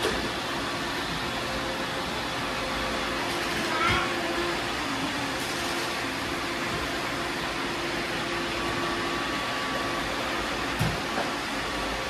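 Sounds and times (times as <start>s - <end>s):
robot vacuums whirring: 0.0s - 12.0s.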